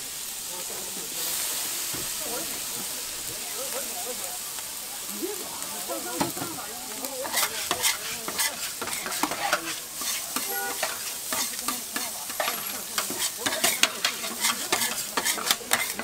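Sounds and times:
rice sizzling on a griddle: 0:00.0 - 0:16.0
metal spatulas scraping a griddle: 0:07.1 - 0:16.0.

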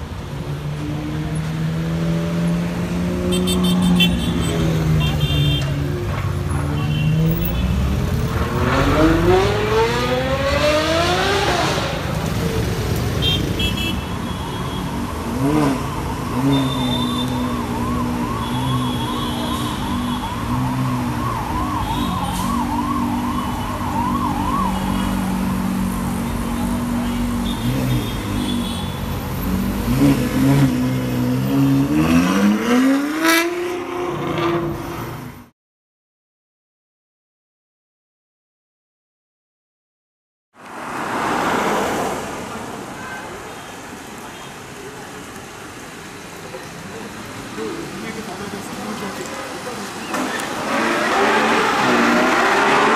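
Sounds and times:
car engine revving: 0:07.1 - 0:12.7, 0:50.2 - 0:52.9
warbling siren: 0:15.3 - 0:26.3.

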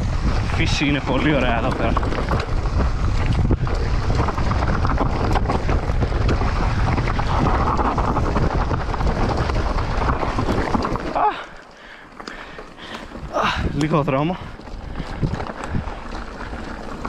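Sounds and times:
bike knocks and rattles: 0:00.0 - 0:11.6
mountain bike rolling on dirt: 0:00.0 - 0:17.0
wind buffeting microphone: 0:00.0 - 0:17.0.

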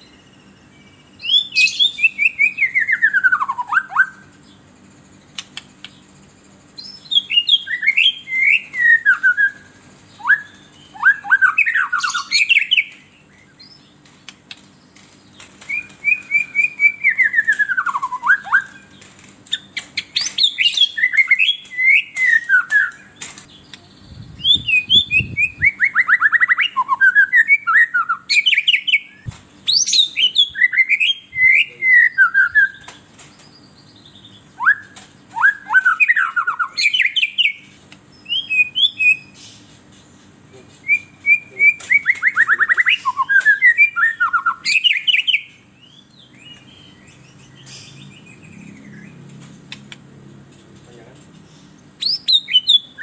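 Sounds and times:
songbird trills and whistles: 0:00.0 - 0:04.4, 0:06.7 - 0:49.4, 0:51.4 - 0:53.0.

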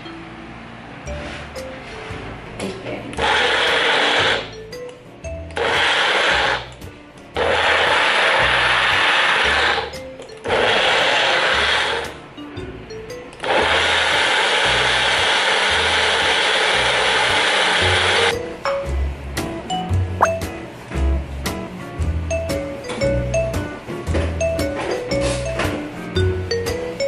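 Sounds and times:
blender blending: 0:03.2 - 0:04.5, 0:05.6 - 0:06.8, 0:07.4 - 0:09.9, 0:10.5 - 0:12.1, 0:13.4 - 0:18.3.

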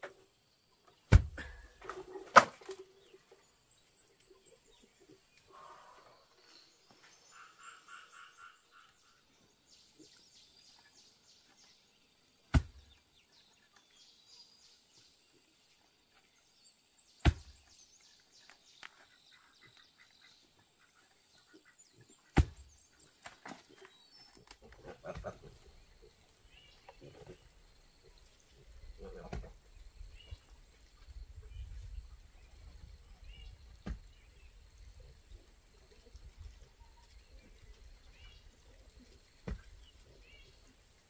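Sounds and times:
faint chirping animal calls: 0:07.3 - 0:09.3.

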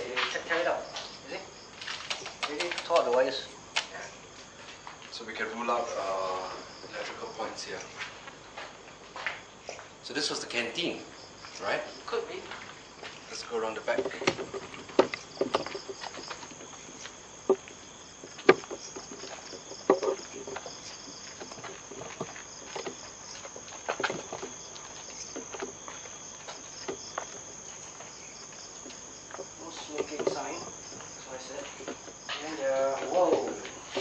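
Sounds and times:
crickets chirping: 0:00.0 - 0:34.0
footsteps: 0:03.8 - 0:10.0, 0:11.2 - 0:34.0
sharp knocks: 0:13.9 - 0:16.3, 0:18.2 - 0:20.8, 0:29.3 - 0:30.8.

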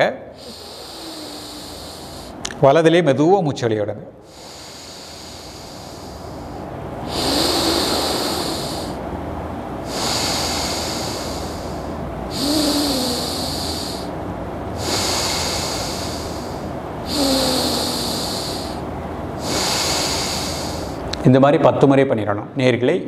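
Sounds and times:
man breathing through nostril: 0:00.4 - 0:02.6, 0:04.2 - 0:09.1, 0:09.8 - 0:21.1.

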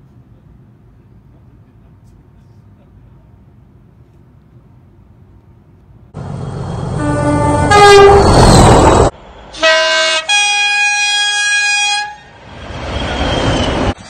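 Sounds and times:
locomotive two-tone horn: 0:06.9 - 0:08.4, 0:09.5 - 0:12.4.

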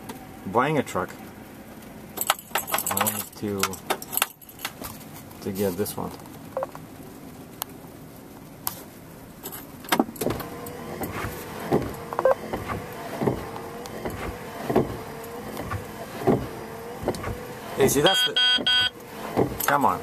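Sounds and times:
low vehicle hum: 0:00.0 - 0:20.0
sharp clicks and knocks: 0:09.5 - 0:17.4.

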